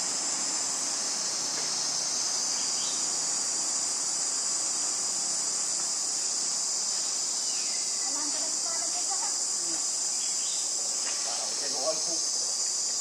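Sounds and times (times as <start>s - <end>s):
chorus of insects droning: 0.0s - 13.0s.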